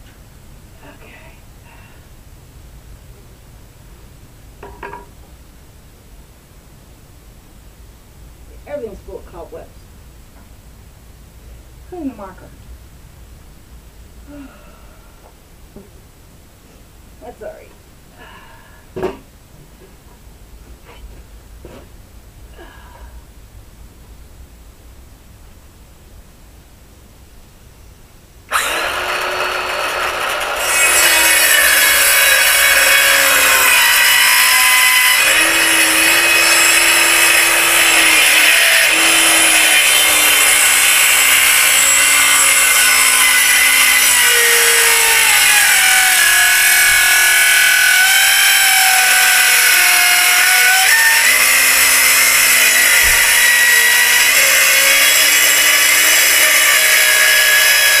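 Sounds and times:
power saw cutting wood: 28.5 - 58.0.

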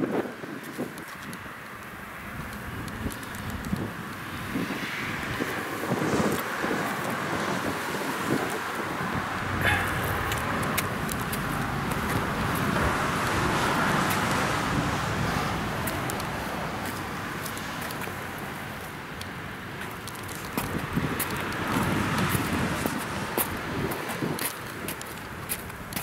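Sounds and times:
wind on microphone: 0.0 - 18.6, 19.9 - 26.0
road traffic: 0.0 - 26.0
sharp clicks: 0.9 - 4.2.

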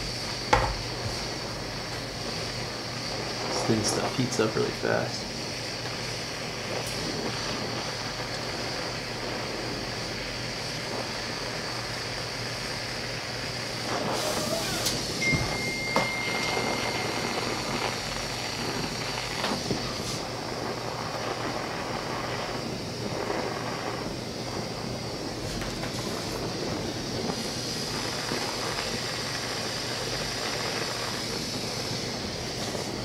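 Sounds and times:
torch flame hissing: 0.0 - 33.0
thin whistle: 14.0 - 17.8.

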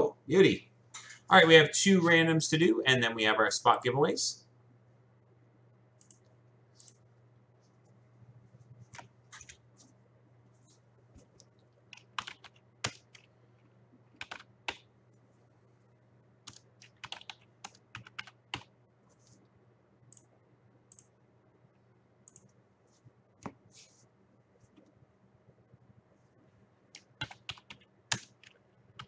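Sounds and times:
faint steady hum: 0.0 - 29.0
keyboard typing clicks: 6.0 - 7.0, 11.9 - 13.3, 14.2 - 14.8, 16.5 - 18.7, 22.2 - 22.6, 27.0 - 29.0.

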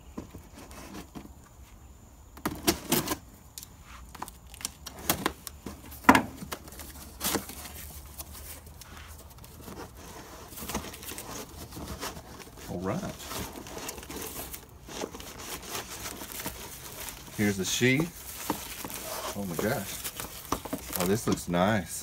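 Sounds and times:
cardboard rustling: 4.0 - 22.0
cardboard ripping: 4.2 - 21.8.

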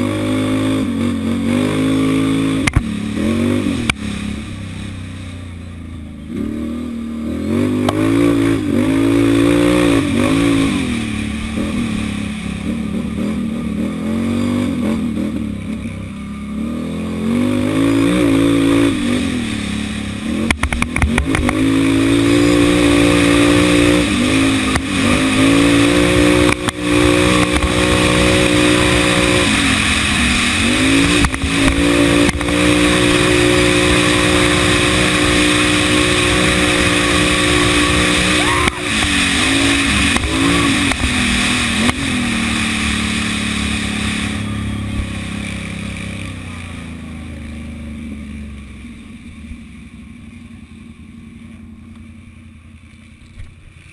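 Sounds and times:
quad engine revving: 0.0 - 48.0.

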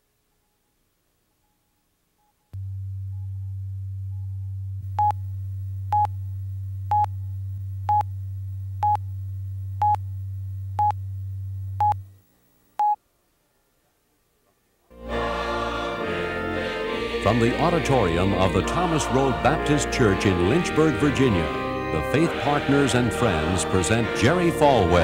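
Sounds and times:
steady low hum: 2.5 - 13.0.

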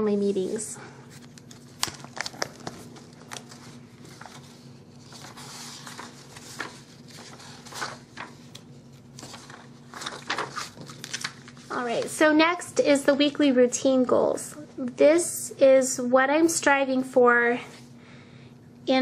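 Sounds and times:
paper pages rustling: 1.1 - 12.3.

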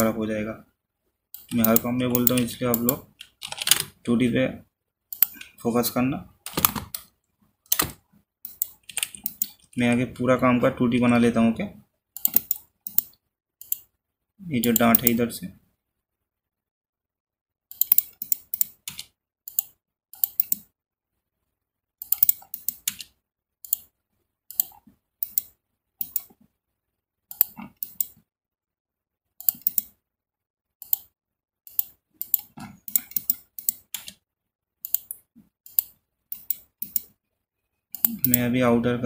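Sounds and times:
computer mouse button clicking: 27.3 - 28.2, 29.4 - 30.0, 34.9 - 37.1.

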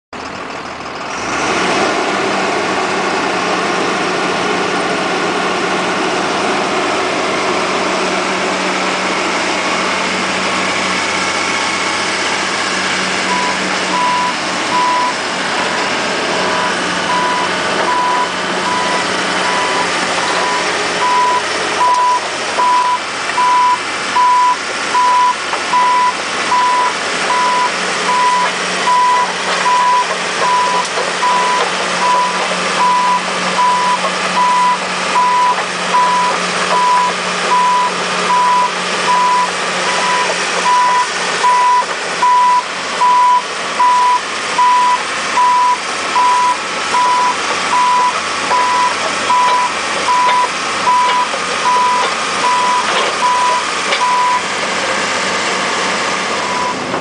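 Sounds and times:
excavator diesel engine running: 0.1 - 57.0
warning alarm beeping: 13.2 - 15.2, 16.4 - 54.5, 56.4 - 56.8.

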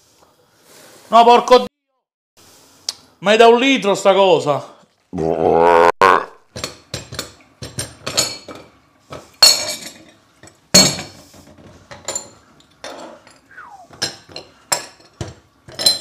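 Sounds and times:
kitchenware clattering on metal hob: 6.5 - 16.0.

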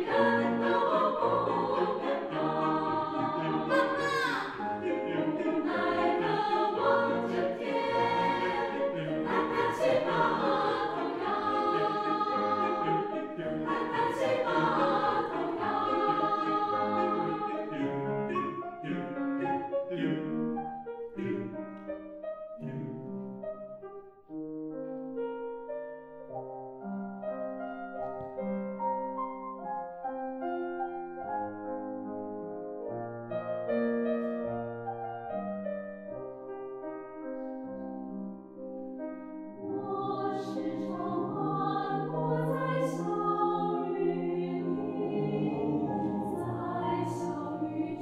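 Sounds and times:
mixed choir singing in harmony: 0.0 - 21.8, 22.6 - 23.2, 39.5 - 48.0.

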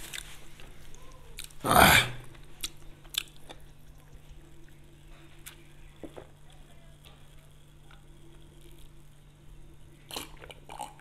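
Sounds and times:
liquid and swallowing noises: 10.1 - 11.0.

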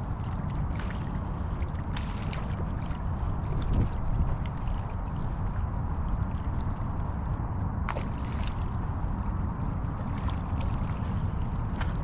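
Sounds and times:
water rumble: 0.0 - 12.0
wind rumble: 0.0 - 12.0.

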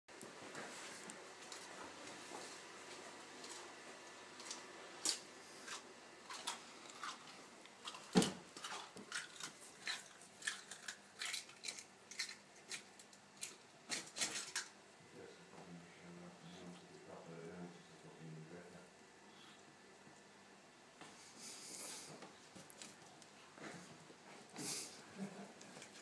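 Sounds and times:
eggshell cracking and crunching: 6.3 - 14.7.

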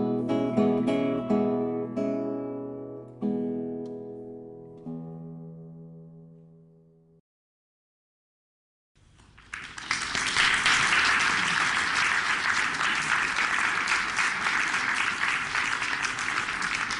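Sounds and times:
audience applause: 9.2 - 16.9.

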